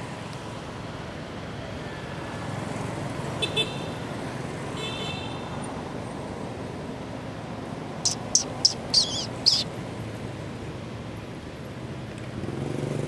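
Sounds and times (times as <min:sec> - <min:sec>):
distant road traffic rumble: 0:00.0 - 0:13.0
short high chirps: 0:08.1 - 0:09.6.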